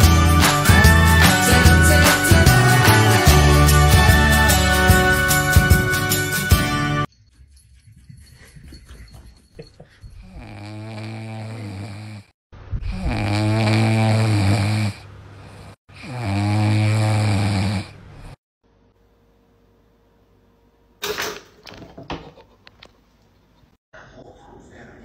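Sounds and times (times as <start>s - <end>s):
puppy snoring: 10.2s - 18.4s.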